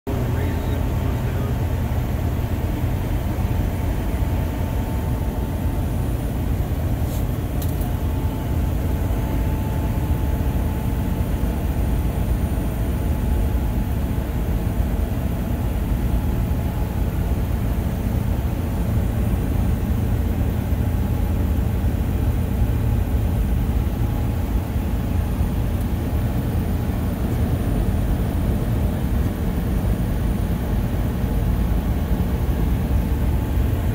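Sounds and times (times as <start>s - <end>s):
road rumble inside vehicle cab: 0.0s - 33.9s.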